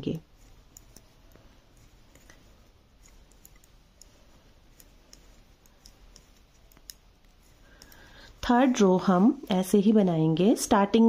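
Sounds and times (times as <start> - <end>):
metal knitting needles clicking: 0.0 - 8.7.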